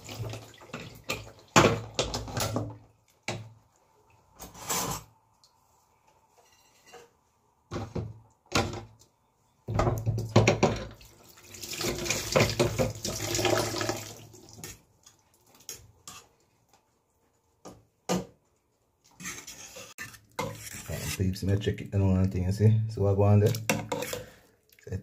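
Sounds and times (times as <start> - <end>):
water running and splashing: 0.0 - 2.0, 10.9 - 15.8.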